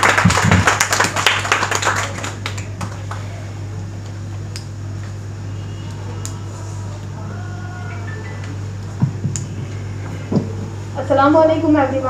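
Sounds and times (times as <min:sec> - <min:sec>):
audience clapping: 0:00.0 - 0:03.5
steady low hum: 0:00.0 - 0:12.0.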